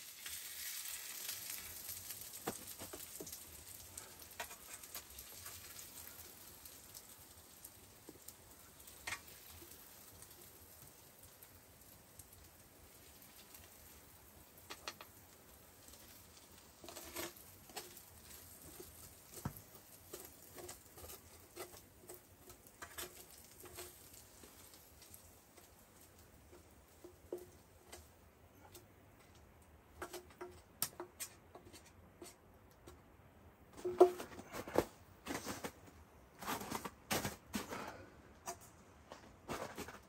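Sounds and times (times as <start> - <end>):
spatula scraping frying pan: 15.8 - 28.8.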